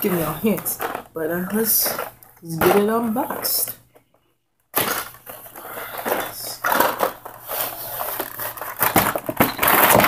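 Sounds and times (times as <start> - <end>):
cardboard rustling and scraping: 5.1 - 10.0.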